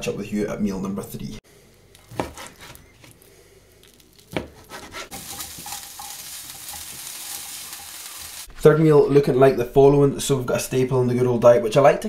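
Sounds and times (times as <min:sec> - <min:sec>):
chicken sizzling in a frying pan: 0:05.1 - 0:08.5.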